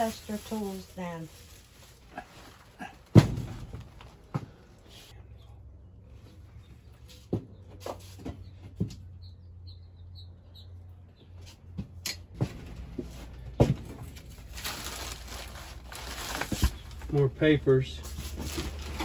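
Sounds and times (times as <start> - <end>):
paper rustling: 14.1 - 17.2.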